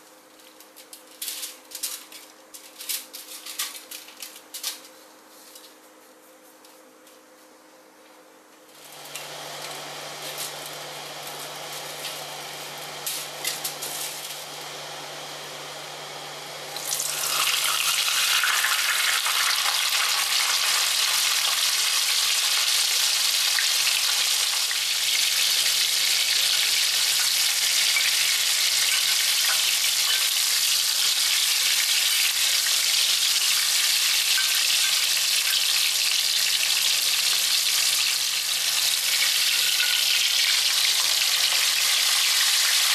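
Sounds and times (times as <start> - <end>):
fish sizzling in hot oil: 8.8 - 42.9.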